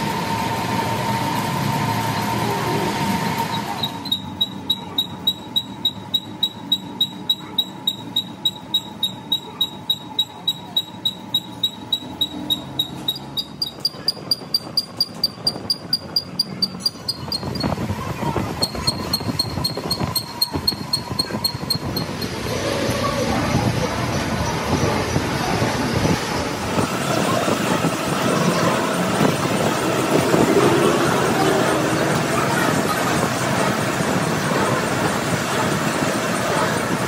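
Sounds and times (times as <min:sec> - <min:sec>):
rhythmic ringing taps: 0:03.5 - 0:22.4.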